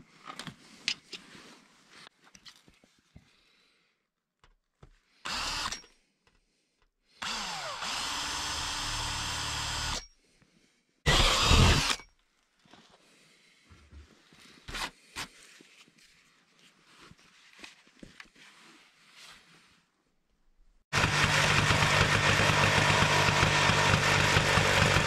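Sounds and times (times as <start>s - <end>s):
drill drilling into steel panel: 5.3s - 5.8s, 7.2s - 10.0s, 11.1s - 12.0s, 20.9s - 25.0s.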